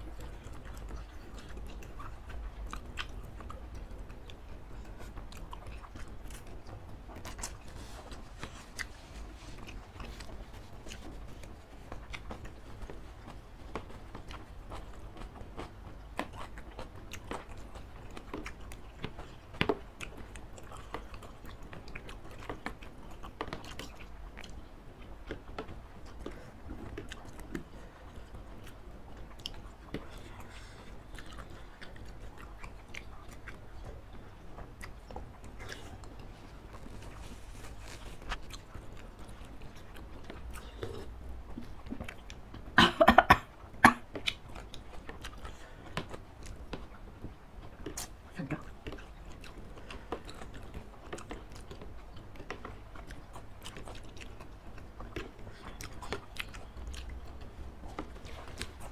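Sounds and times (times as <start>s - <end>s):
chewing: 0.0s - 42.8s, 43.4s - 58.9s
person coughing: 42.8s - 44.0s.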